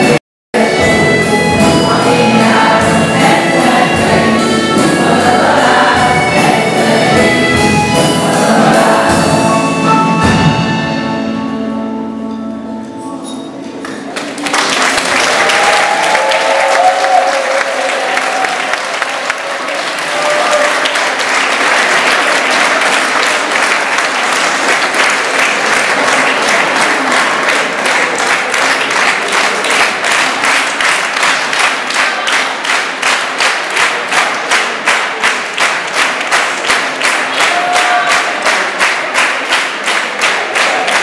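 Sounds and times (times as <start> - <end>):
rhythmic clapping: 0.0 - 9.4, 13.8 - 41.0
audience applauding and cheering: 13.8 - 41.0
shouted cheers: 15.2 - 21.1, 37.4 - 38.5.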